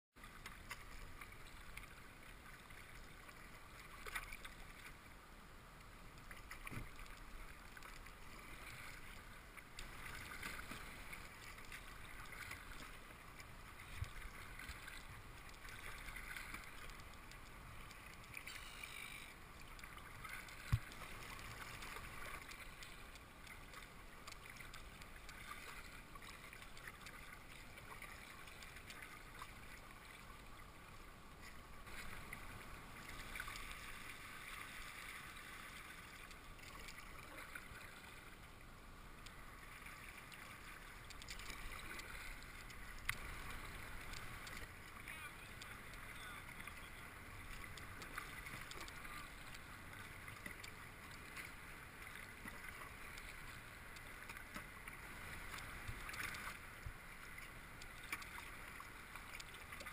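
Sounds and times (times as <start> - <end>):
paddle dripping: 0.2 - 59.9
water splashing and trickling: 0.2 - 59.9.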